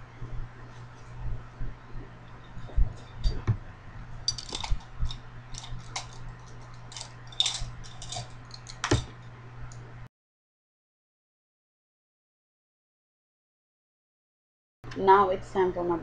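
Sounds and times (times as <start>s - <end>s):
low hum: 0.0s - 10.1s.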